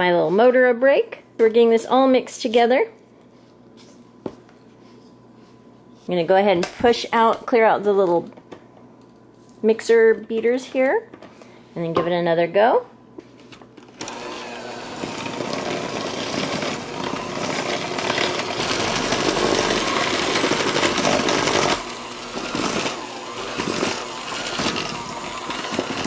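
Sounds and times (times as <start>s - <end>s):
electric hand mixer churning dough: 14.0s - 26.0s.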